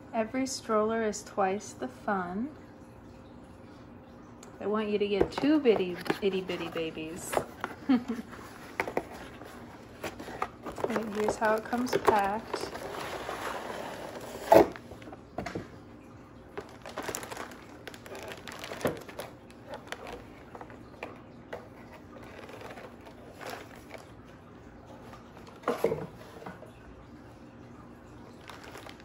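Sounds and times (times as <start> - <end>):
packaging rustling and knocks: 5.2 - 15.6, 16.6 - 20.8, 22.2 - 24.0, 28.4 - 29.0.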